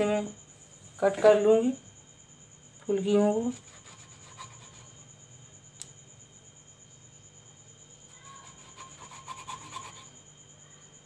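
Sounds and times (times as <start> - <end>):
light click: 5.8 - 6.0.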